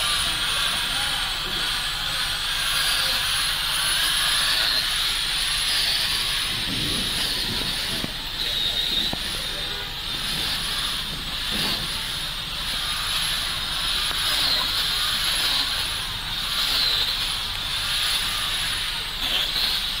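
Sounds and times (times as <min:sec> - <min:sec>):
road traffic hissing on wet street: 0:00.0 - 0:20.0
rain: 0:04.9 - 0:16.2.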